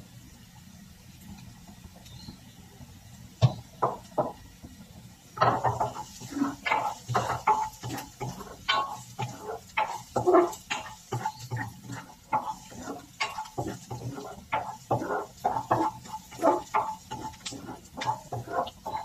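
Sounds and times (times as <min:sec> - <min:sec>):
spoon stirring food in pan: 0:05.4 - 0:19.0
plastic spoon knocking on pan: 0:07.1 - 0:19.0.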